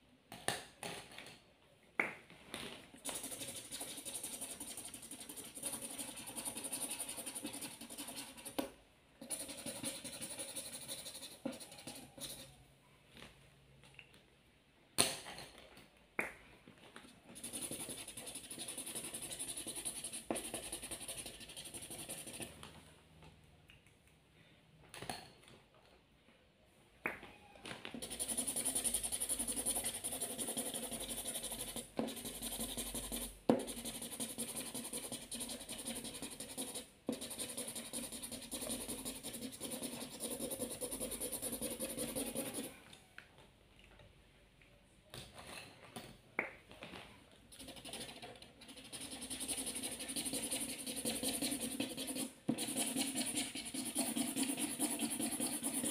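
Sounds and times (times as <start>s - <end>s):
marker scribbling on paper: 3.0s - 12.6s, 17.3s - 22.6s, 28.0s - 42.7s, 47.5s - 55.9s.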